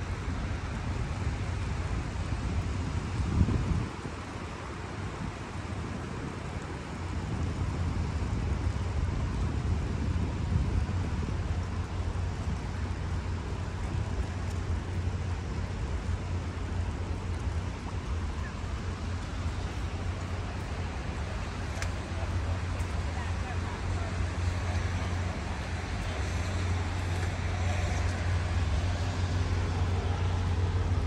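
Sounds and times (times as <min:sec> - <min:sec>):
wind buffeting microphone: 0:00.0 - 0:31.0
outdoor ambience: 0:10.4 - 0:31.0.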